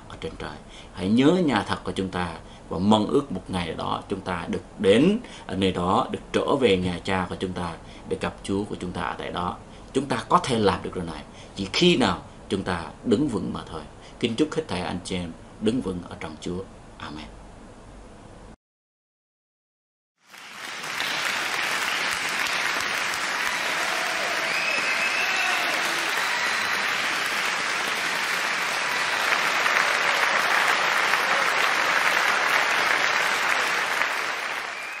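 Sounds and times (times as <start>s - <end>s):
crowd applause: 20.2s - 35.0s
faint cheers or whistles: 23.3s - 27.3s, 34.4s - 35.0s.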